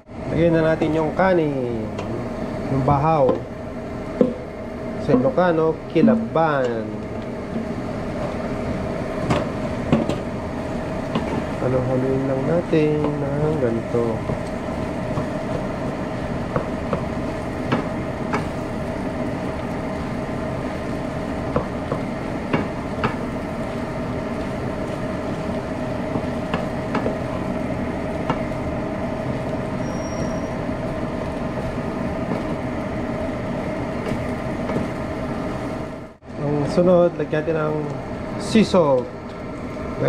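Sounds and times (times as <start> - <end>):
steady hum: 0.0 - 29.8.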